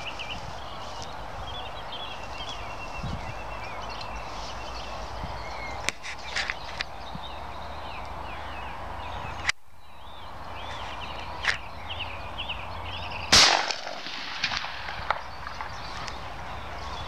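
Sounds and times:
birds chirping: 0.0s - 17.0s
shotgun shot: 13.3s - 15.7s.

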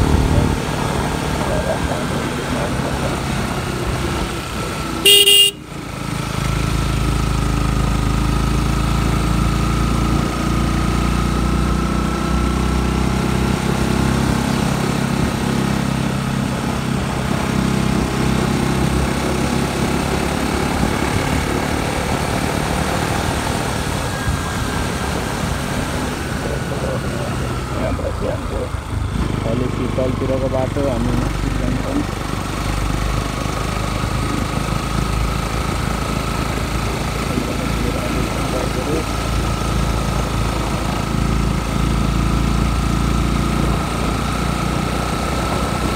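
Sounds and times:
motorcycle engine running: 0.0s - 45.9s
short loud horn beep: 5.0s - 5.7s.

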